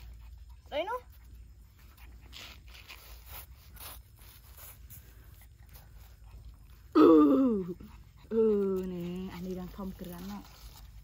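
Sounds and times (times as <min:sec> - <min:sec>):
faint rustling and scuffing: 0:01.2 - 0:06.8.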